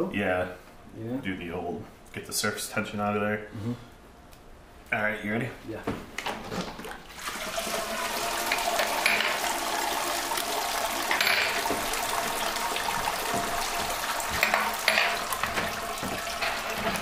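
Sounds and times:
liquid pouring and splashing: 0:06.4 - 0:17.0.

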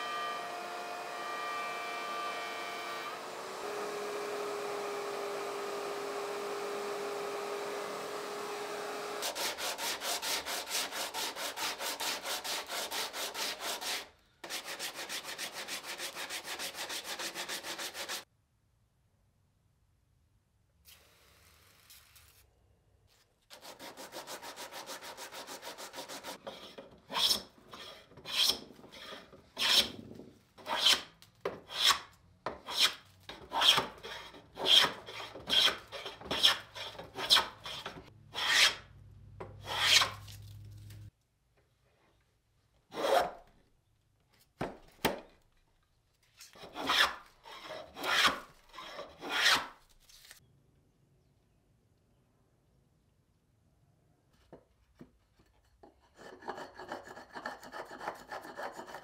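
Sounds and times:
hand plane swishing on wood: 0:23.5 - 0:38.8, 0:39.6 - 0:40.2, 0:46.6 - 0:49.8.

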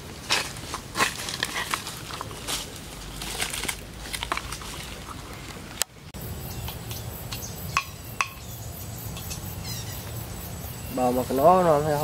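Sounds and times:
outdoor background: 0:00.0 - 0:12.0
peppers rustling in metal pot: 0:00.2 - 0:05.7.

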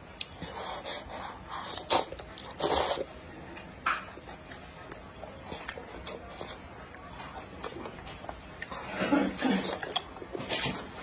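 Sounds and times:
soft wet chewing: 0:00.0 - 0:11.0.

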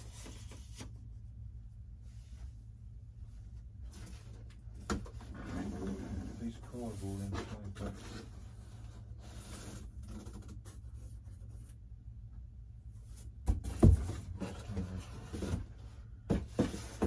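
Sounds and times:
steady low hum: 0:00.0 - 0:17.0
cardboard rubbing and scraping: 0:05.1 - 0:11.7.

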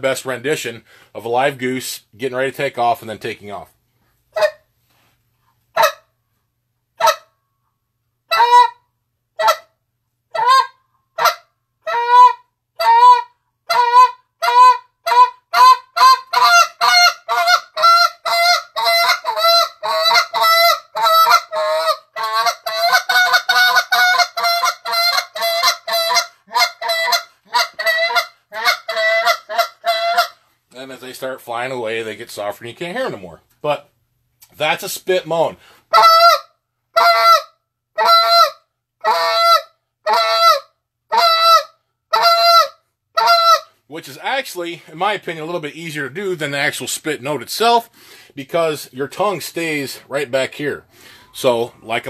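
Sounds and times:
goose call blown by mouth: 0:08.3 - 0:08.8, 0:10.3 - 0:30.4, 0:35.9 - 0:43.8.

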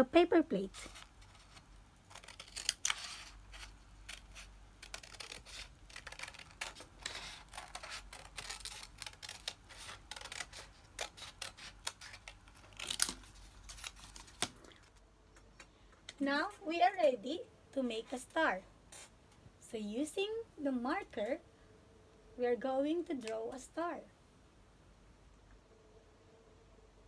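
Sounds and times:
paper rustling: 0:00.6 - 0:15.0
scissors snipping paper: 0:00.7 - 0:14.8.

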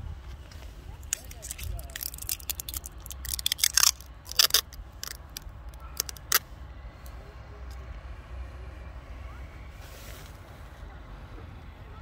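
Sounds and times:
plastic wrapper crinkling and clicks: 0:01.0 - 0:06.4.

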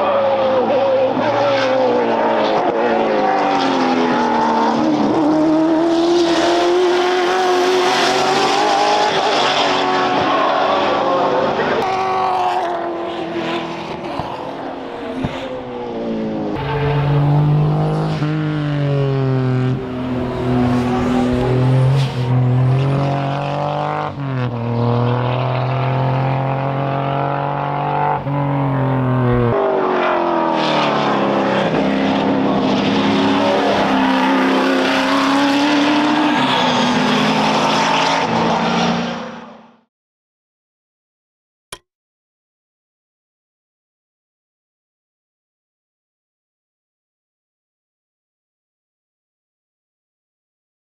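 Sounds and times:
racing car engines revving: 0:00.0 - 0:39.9.

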